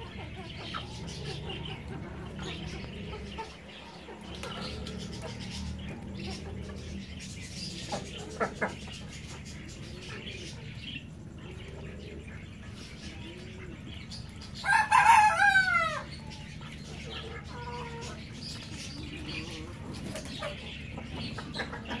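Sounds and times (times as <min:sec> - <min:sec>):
chicken clucking: 0:00.0 - 0:22.0
rooster crowing: 0:14.6 - 0:16.2.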